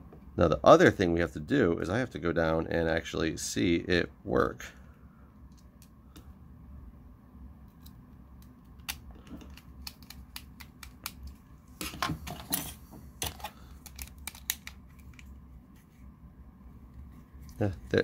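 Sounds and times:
screwdriver and plastic parts clicking: 13.2s - 15.3s.

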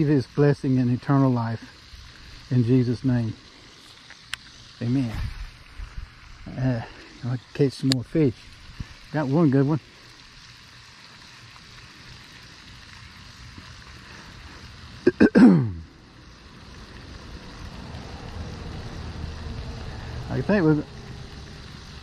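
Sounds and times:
man clearing his throat: 15.1s - 15.8s.

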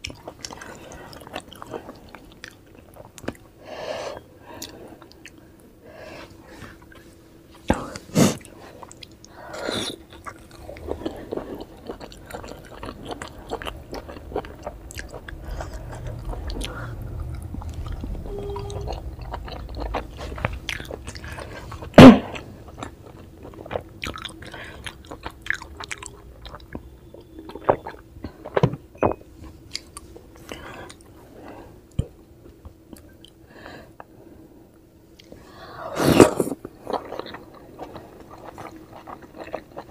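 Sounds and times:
chewing dumplings: 0.0s - 3.6s, 8.4s - 28.8s, 36.2s - 39.9s
low rumbling: 10.5s - 28.2s.

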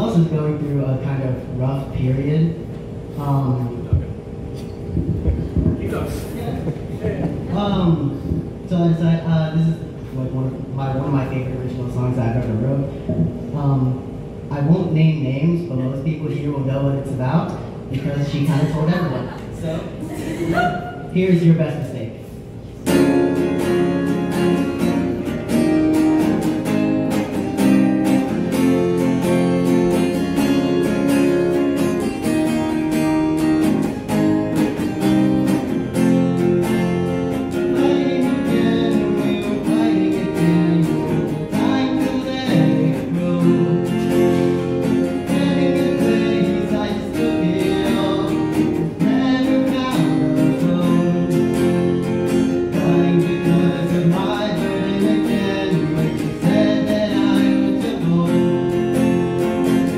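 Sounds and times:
acoustic guitar strummed chords: 22.8s - 59.9s.

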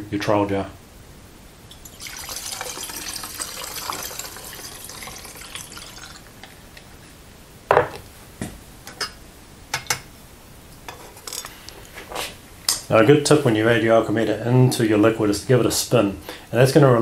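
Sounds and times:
liquid trickling through funnel: 1.7s - 6.5s.

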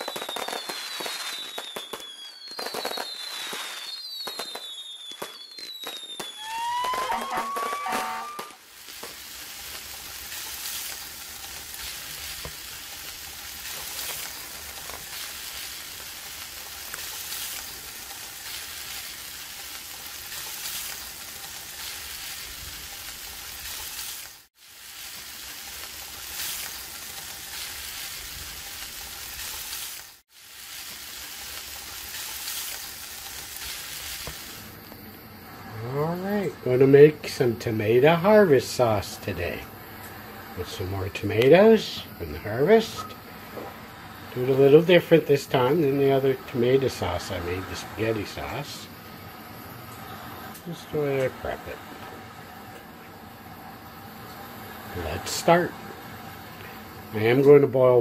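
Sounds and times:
fireworks pops and crackles: 0.0s - 35.1s, 37.3s - 45.7s
fireworks whistles falling: 0.0s - 58.0s
steady sizzle: 0.0s - 58.0s.

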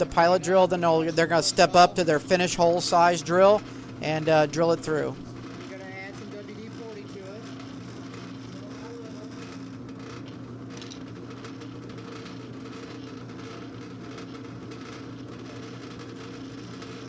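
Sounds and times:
drill spindle motor humming: 0.0s - 17.0s.

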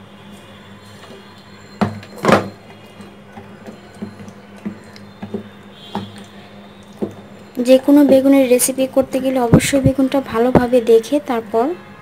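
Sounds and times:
glass knocking against plate: 1.8s - 2.6s.

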